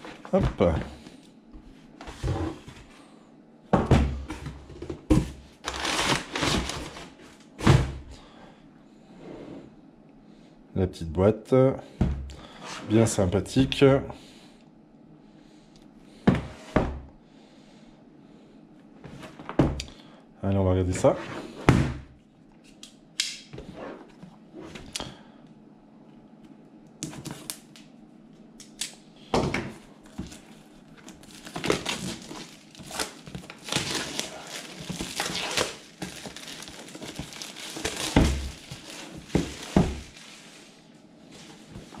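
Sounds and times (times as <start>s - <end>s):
plastic wrap tearing and crinkling: 5.6s - 7.0s, 30.3s - 40.6s.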